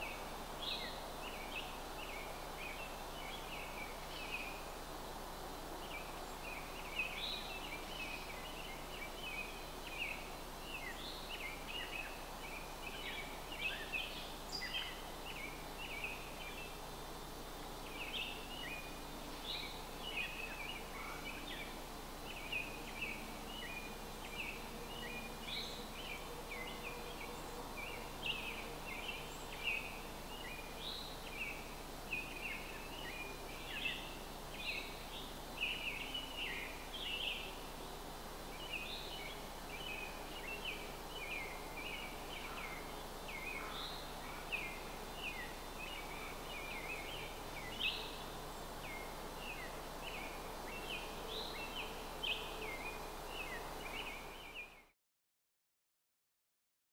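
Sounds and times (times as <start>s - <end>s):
background hiss: 0.0s - 55.0s
birds chirping: 38.5s - 54.9s.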